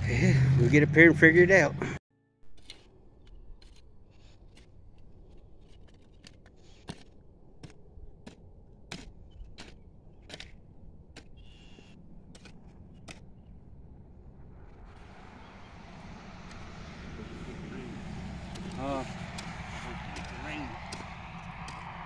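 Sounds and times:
hoe striking stony soil: 2.6 - 13.5.

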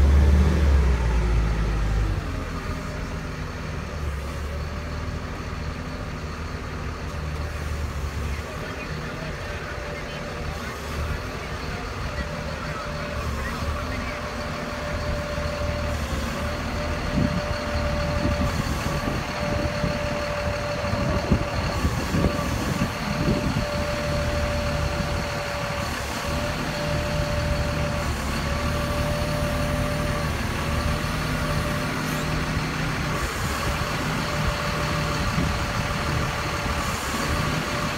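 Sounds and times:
forklift engine running: 0.0 - 37.9.

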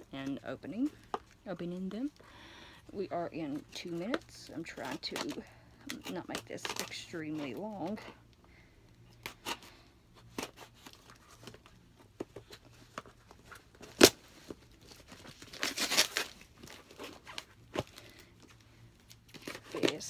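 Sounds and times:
wrapping tearing: 13.2 - 18.2, 19.0 - 20.0.

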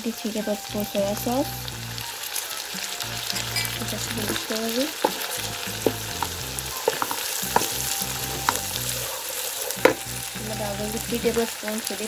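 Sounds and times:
food sizzling in a wok: 0.0 - 12.0
spatula knocking against pan: 5.0 - 8.9, 9.8 - 10.1.

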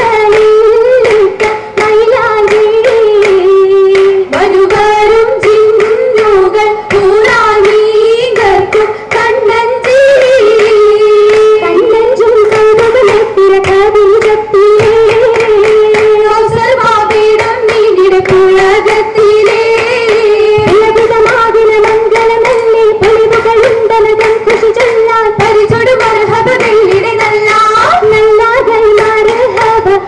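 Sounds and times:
rhythmic hand claps: 0.0 - 30.0
group singing: 14.2 - 30.0.

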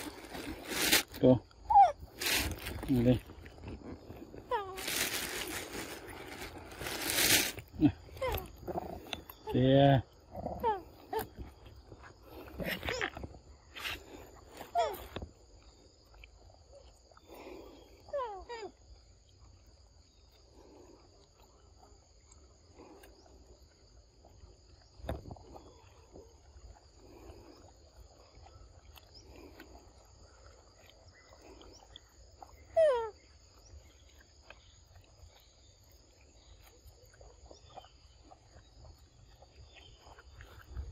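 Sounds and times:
soft rustling: 0.0 - 1.2, 2.1 - 7.7
insects trilling: 0.0 - 40.9.

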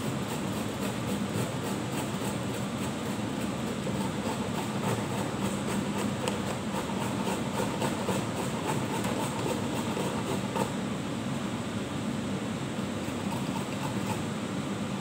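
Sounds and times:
vegetable rasping on metal grater: 0.0 - 10.8, 13.0 - 14.2
steady background hum: 0.0 - 15.0.

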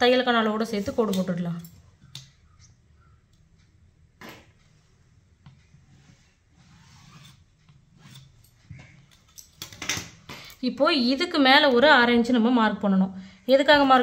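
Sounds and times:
faint rubbing on cloth: 5.8 - 7.4.

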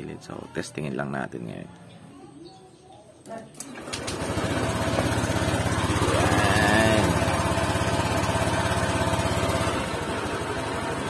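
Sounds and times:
scooter engine revving: 3.8 - 11.0.

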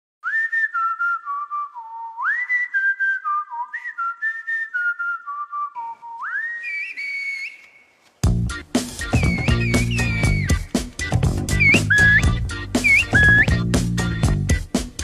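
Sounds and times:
loud human whistling: 0.2 - 8.0, 9.0 - 10.8, 11.5 - 13.7.

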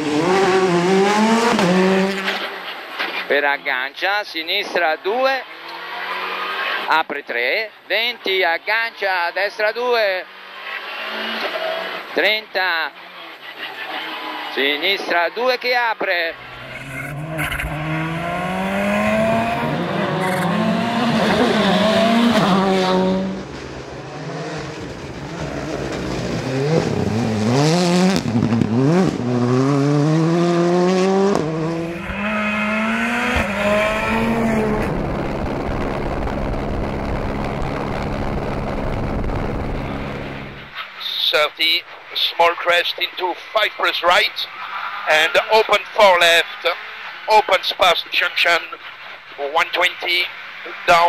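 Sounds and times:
rally car engines revving: 0.0 - 3.3, 5.4 - 6.9, 10.0 - 12.3, 12.9 - 15.2, 16.2 - 40.8.

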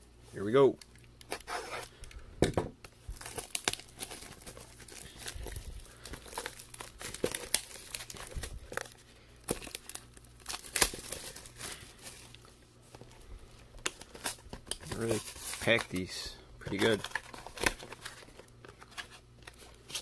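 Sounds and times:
plastic shrink-wrap crackling: 3.1 - 13.1, 13.7 - 18.5.

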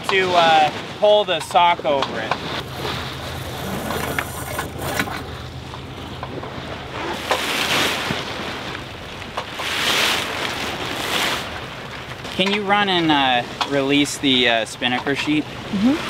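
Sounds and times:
sea noise: 0.0 - 16.0
wind buffeting microphone: 1.9 - 9.4.

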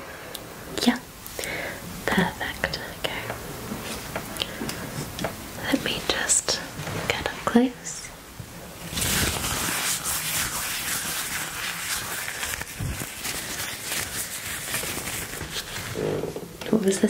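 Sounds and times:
crackly rustle close to ear: 8.5 - 17.0.

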